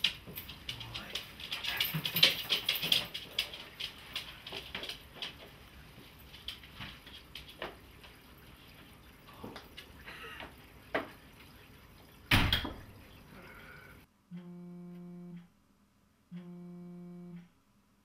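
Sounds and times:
dog claws pattering on tiles: 0.0 - 8.2.

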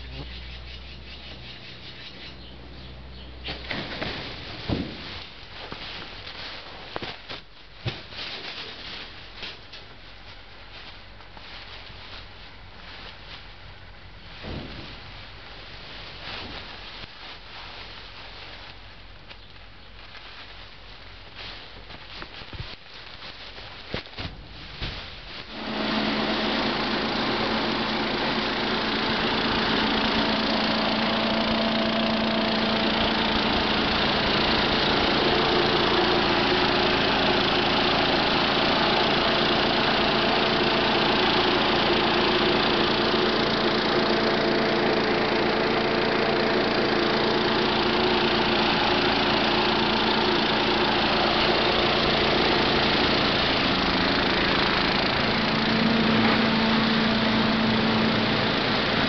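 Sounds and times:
farm machinery engine running: 25.4 - 59.0.

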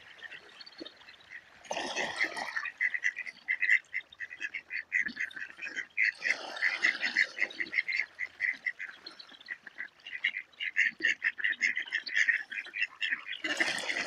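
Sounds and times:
ducks calling: 0.0 - 14.0.

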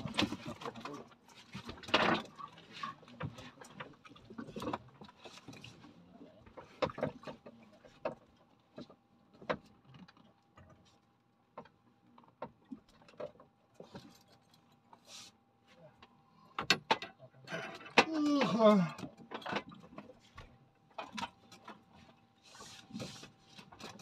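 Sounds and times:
knocks and taps on a boat: 6.4 - 10.8, 16.5 - 17.2.

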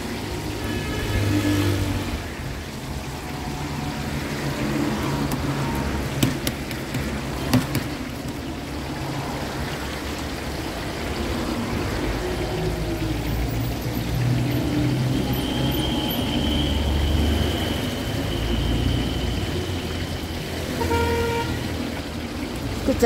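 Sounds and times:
meat sizzling in hot oil: 0.0 - 23.0.

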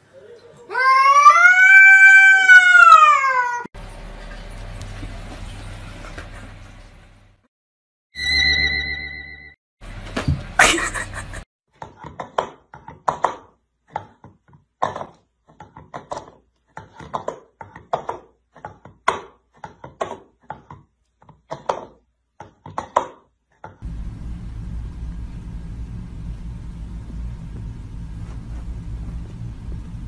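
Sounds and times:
steady low rumble: 23.8 - 30.0.

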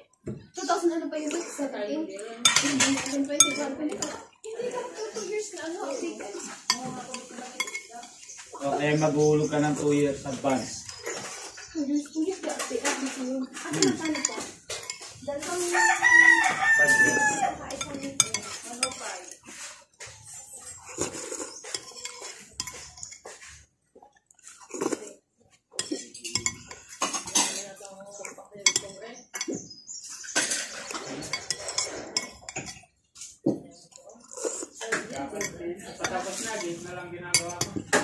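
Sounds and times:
spoon scraping a bowl: 2.4 - 23.8, 24.4 - 33.6, 34.3 - 38.0
rooster crowing: 15.7 - 17.6.

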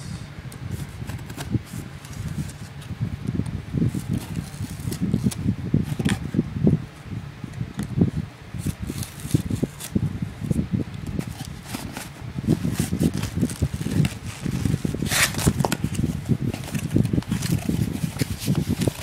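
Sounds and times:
cardboard scraping and rubbing: 0.7 - 2.9, 3.8 - 6.2, 8.6 - 10.0, 11.2 - 19.0
knife slitting tape: 15.0 - 15.7.

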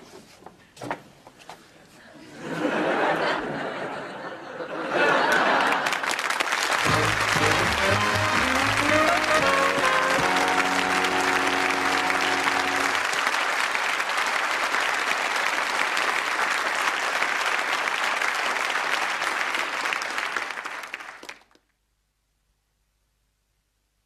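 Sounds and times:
audience applauding: 5.0 - 21.6
theme music held notes: 6.8 - 13.1.

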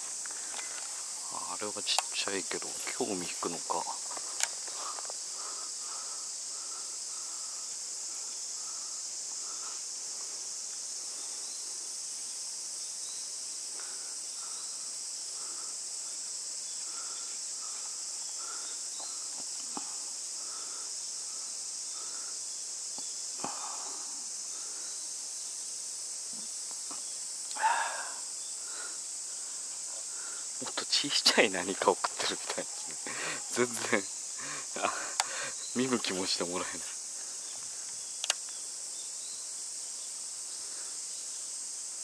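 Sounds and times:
faint clicks: 4.1 - 5.1, 37.6 - 38.6.

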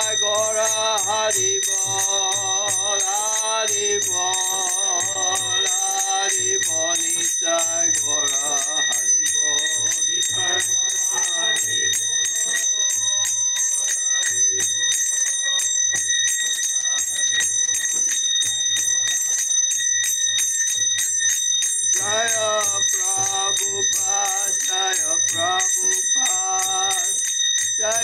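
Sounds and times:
man singing a chant: 0.0 - 13.4, 22.0 - 28.0
hand cymbals ringing: 0.0 - 28.0.

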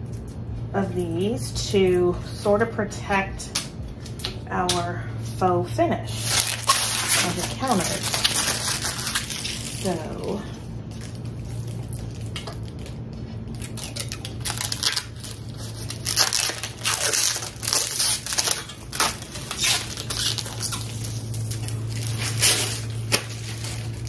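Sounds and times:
steady low hum: 0.0 - 24.0
plastic film crinkling: 6.1 - 24.0.

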